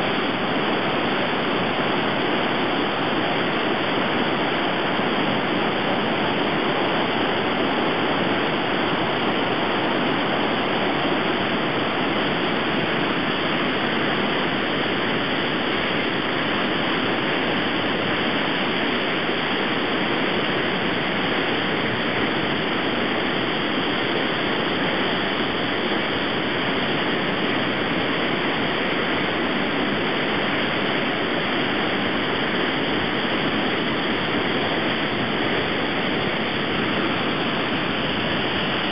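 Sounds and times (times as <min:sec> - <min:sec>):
floodwater rushing over weir: 0:00.0 - 0:38.9.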